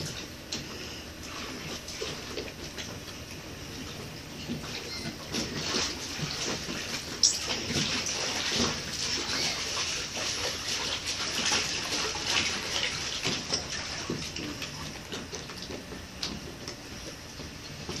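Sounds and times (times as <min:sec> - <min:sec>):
pool water lapping and sloshing: 0:00.0 - 0:18.0
small water splashes: 0:04.6 - 0:15.9.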